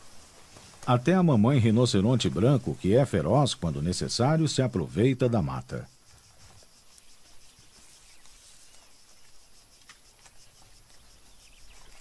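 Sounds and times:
insects chirping: 0.0 - 12.0
faint ticks: 5.9 - 12.0.

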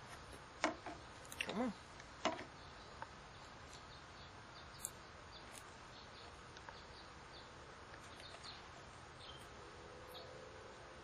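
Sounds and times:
bird chirps: 2.5 - 10.4.

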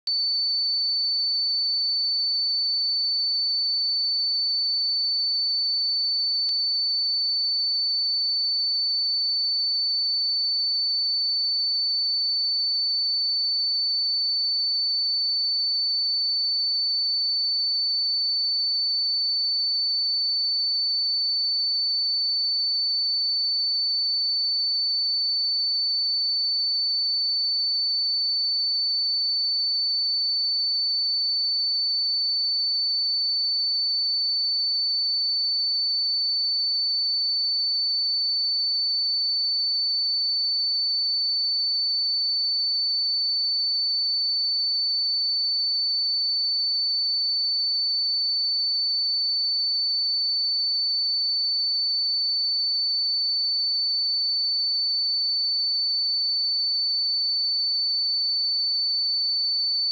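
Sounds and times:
high-pitched sine-wave test tone: 0.0 - 28.9.

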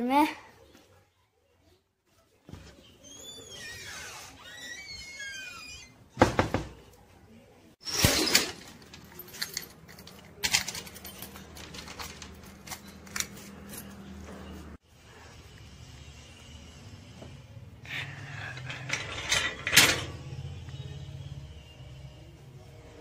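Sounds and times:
metal gate clanking: 18.4 - 20.4.

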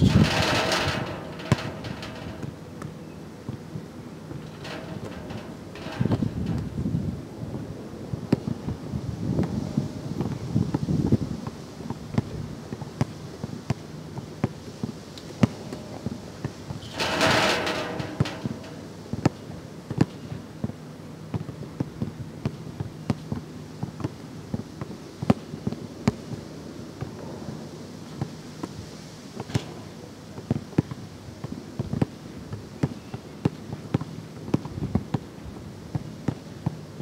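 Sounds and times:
ball striking backboard and rim: 0.1 - 2.6.

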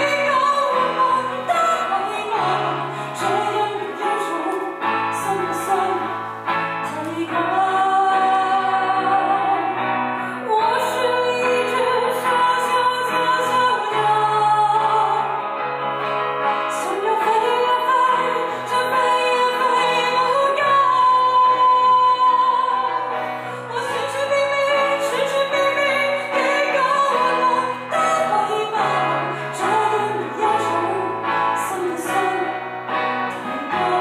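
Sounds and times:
woman singing into microphone: 0.0 - 15.8, 16.4 - 34.0
keyboard: 0.0 - 34.0.

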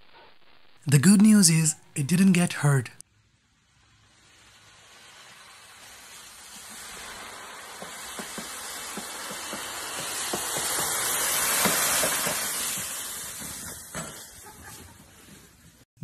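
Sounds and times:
leaves rustling under bike: 3.8 - 15.8.

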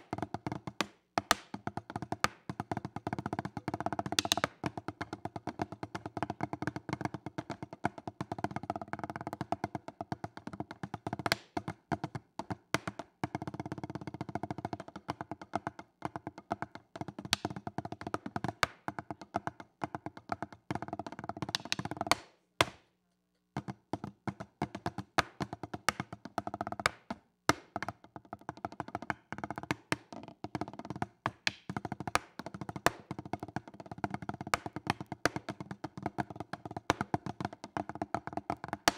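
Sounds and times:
drumsticks on practice pads: 4.1 - 4.6, 21.5 - 22.8.

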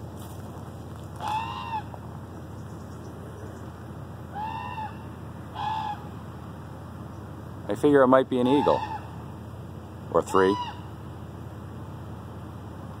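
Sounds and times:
animal calls rising and falling: 1.2 - 2.0, 4.3 - 5.0.

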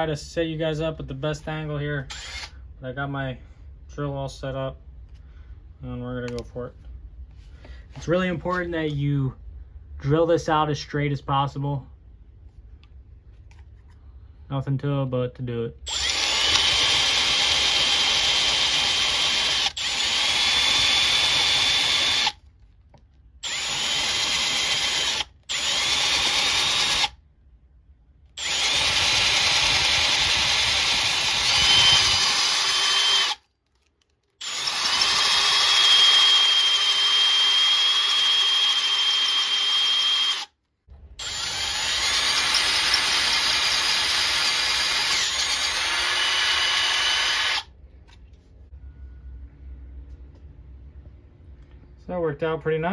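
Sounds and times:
power drill whining: 2.1 - 2.6, 15.9 - 22.4, 23.4 - 27.2, 28.4 - 40.6, 41.2 - 47.7.

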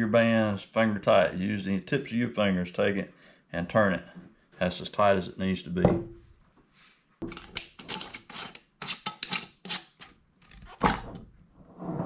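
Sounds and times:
metal lids clinking on jars: 7.3 - 10.1.

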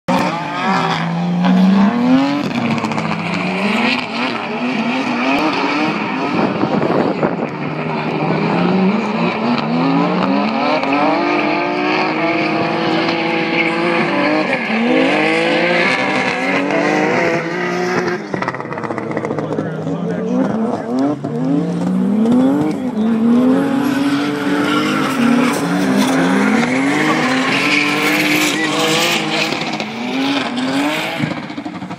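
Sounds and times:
car engine revving: 0.1 - 31.9
tyres squealing: 23.6 - 29.7.

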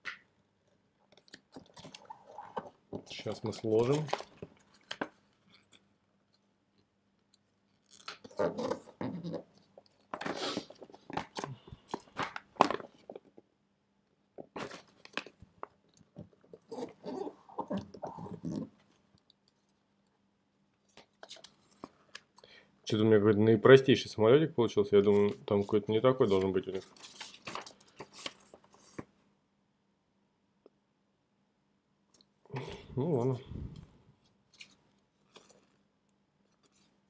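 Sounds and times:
paper crinkling and rustling: 1.1 - 5.8, 14.5 - 19.0, 25.0 - 29.1, 34.5 - 35.8.

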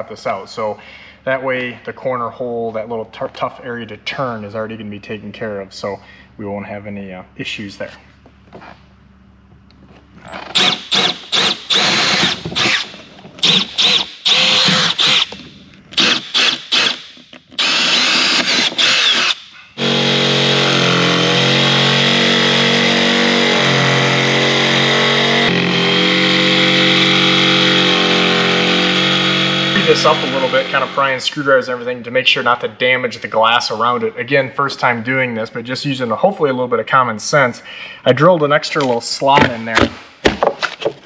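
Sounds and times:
cordless drill boring: 10.4 - 15.4, 16.0 - 31.1
jigsaw cutting: 10.4 - 15.4, 16.0 - 31.1.

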